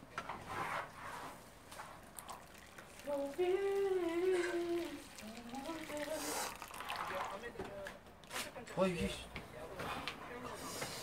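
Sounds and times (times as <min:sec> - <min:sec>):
water pouring into frying pan: 0:02.2 - 0:07.5
person humming: 0:03.0 - 0:06.6.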